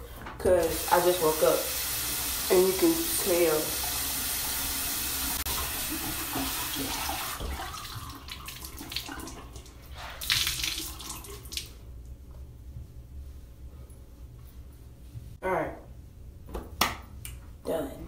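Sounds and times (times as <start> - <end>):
sink tap running: 0.6 - 9.6.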